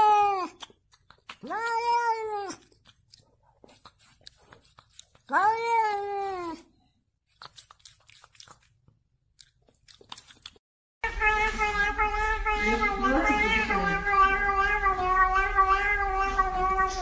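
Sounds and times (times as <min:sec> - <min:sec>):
cat meowing: 0:01.4 - 0:02.7, 0:05.3 - 0:06.6, 0:11.0 - 0:17.0.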